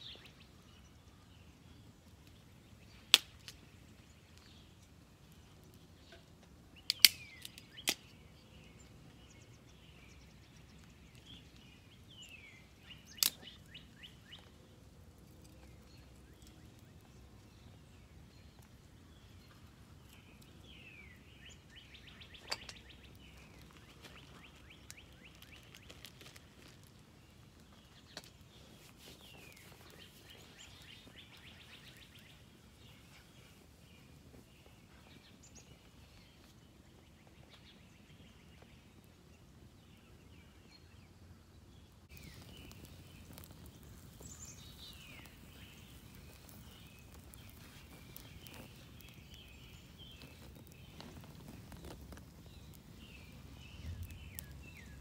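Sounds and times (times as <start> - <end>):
songbirds chirping and trilling: 0.0 - 55.0
twigs snapping: 3.1 - 3.6, 6.9 - 8.1, 13.1 - 14.4, 23.6 - 27.0, 42.1 - 55.0.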